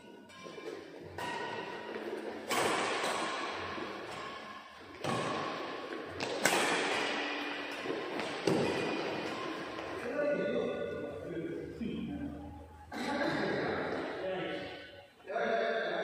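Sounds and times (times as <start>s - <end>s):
racket striking shuttlecock: 0.3s - 9.9s.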